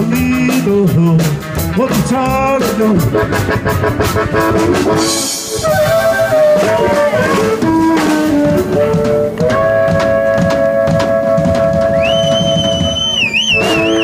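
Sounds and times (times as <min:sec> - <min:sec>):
drum kit: 0:00.0 - 0:14.0
electric guitar: 0:00.0 - 0:14.0
upright double bass: 0:00.0 - 0:14.0.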